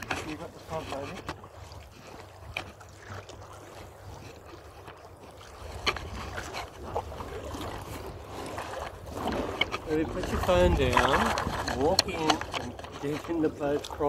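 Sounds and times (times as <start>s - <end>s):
wind rumbling on microphone: 5.4s - 14.0s.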